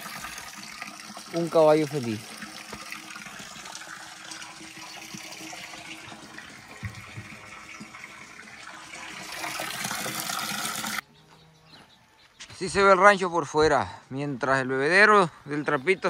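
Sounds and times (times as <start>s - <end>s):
water pouring into trough: 0.0s - 11.0s.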